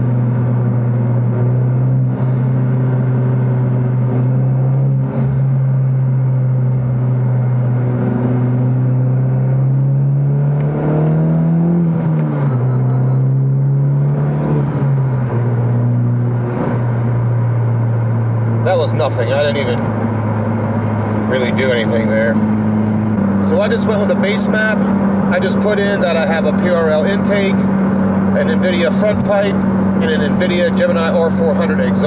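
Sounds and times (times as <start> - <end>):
car engine accelerating: 0.0 - 32.0.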